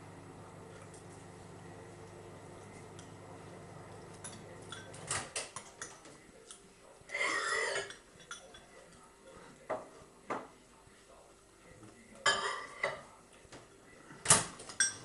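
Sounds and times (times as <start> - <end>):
faint low hum: 0.0 - 15.0
spoons clinking against bowls: 4.2 - 5.0, 7.1 - 8.8, 14.7 - 15.0.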